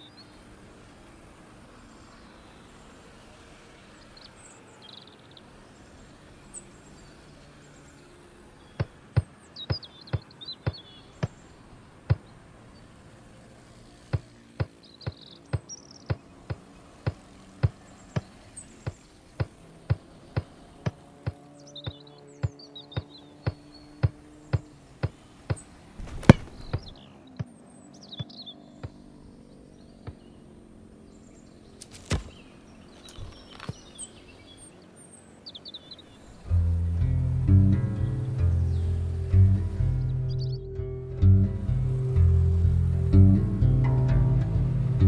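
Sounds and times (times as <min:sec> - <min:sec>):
birds chirping: 0:00.0 - 0:45.0
football thudding against foot: 0:26.0 - 0:26.9, 0:31.8 - 0:32.4.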